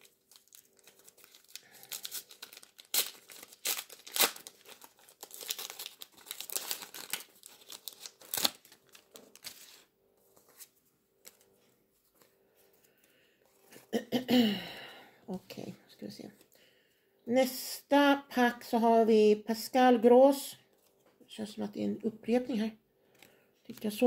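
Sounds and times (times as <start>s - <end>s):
wrapper tearing and crinkling: 0.0s - 9.9s.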